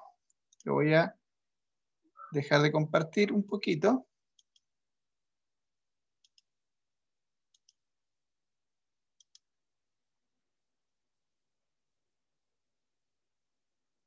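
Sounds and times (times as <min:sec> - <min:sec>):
computer mouse double-clicks: 0:06.2 - 0:06.5, 0:07.5 - 0:07.8, 0:09.1 - 0:09.5.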